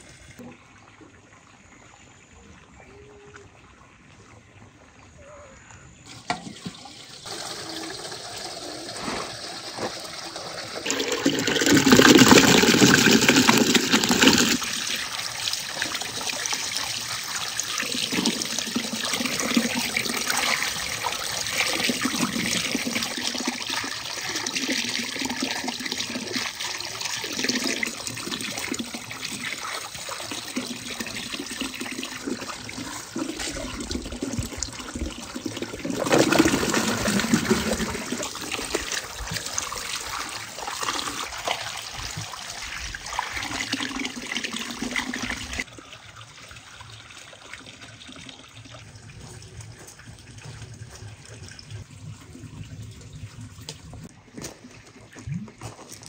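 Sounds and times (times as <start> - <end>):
water splashing and trickling: 0.0 - 56.0
water pouring: 6.0 - 56.0.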